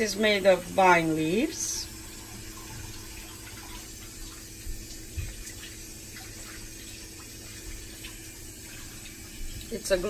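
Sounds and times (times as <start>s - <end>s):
kitchen background hiss: 0.0s - 10.0s.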